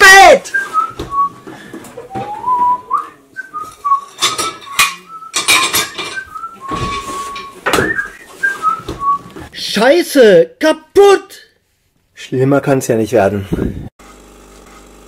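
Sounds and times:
person whistling a melody: 0.5 - 9.3
dishes and cutlery clattering: 3.6 - 8.0.

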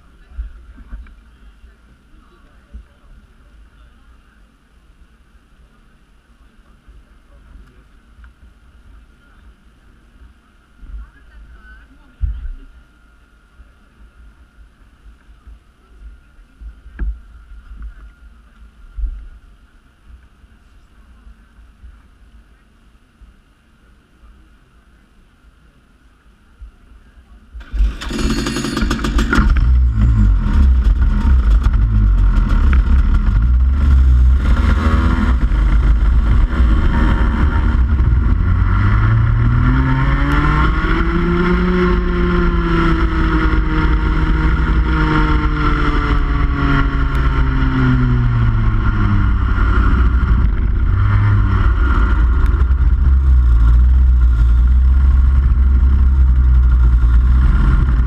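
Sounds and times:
kart engine revving: 27.6 - 58.0.

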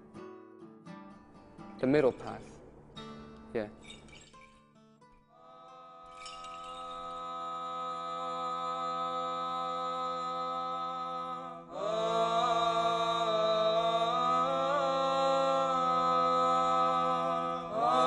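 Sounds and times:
church chanting: 5.4 - 18.0
low vocal drone: 5.4 - 18.0.

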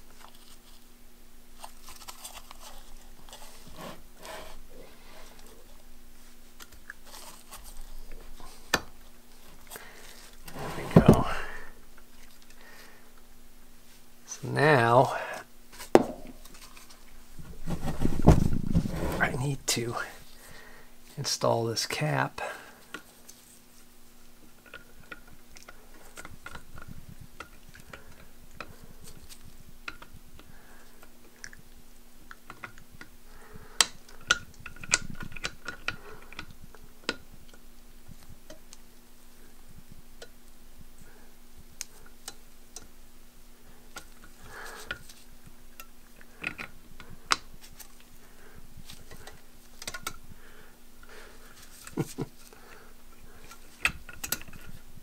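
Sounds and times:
steady electrical hum: 0.0 - 55.0
small metal clicks and scrapes: 48.8 - 50.2, 53.4 - 54.8.

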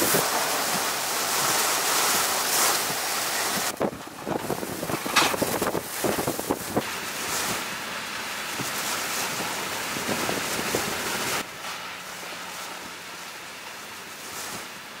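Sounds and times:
wind and rain rushing: 0.0 - 14.8
wind buffeting microphone: 3.4 - 6.8.

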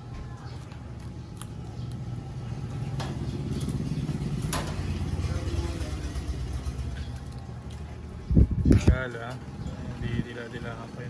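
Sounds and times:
low mechanical rumble: 0.0 - 11.0.

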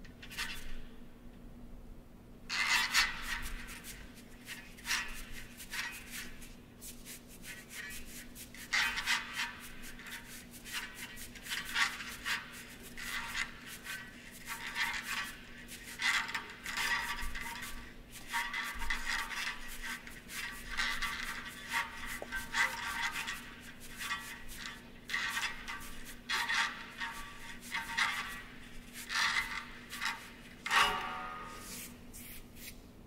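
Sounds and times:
rubbing and scraping strokes: 2.5 - 32.9.

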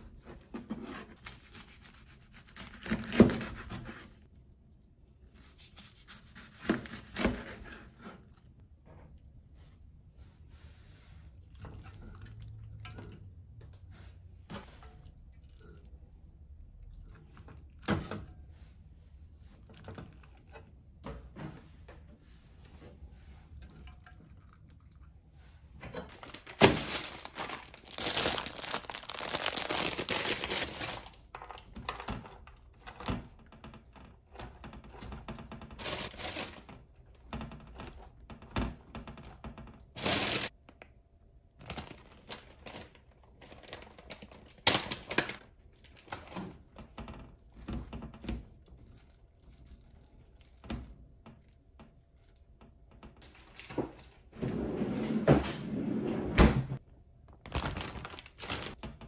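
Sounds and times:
cabbage leaves crinkling: 26.1 - 31.2, 35.8 - 36.6, 40.0 - 40.5, 57.5 - 58.8
leaves tearing: 26.2 - 31.1, 40.0 - 40.5.

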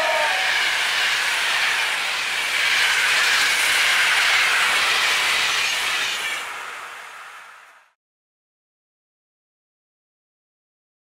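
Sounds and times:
train wheels rushing on track: 0.0 - 8.0.

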